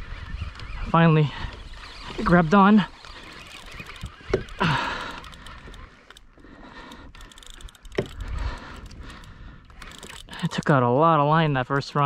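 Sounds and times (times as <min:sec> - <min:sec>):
fishing reel clicking: 0:00.0 - 0:10.8.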